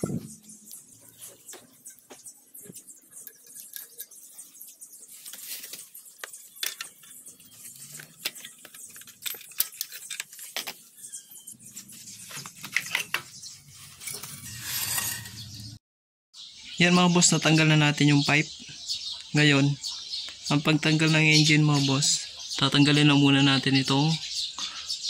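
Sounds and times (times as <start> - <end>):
exhaust pipe scraping: 11.6 - 15.8.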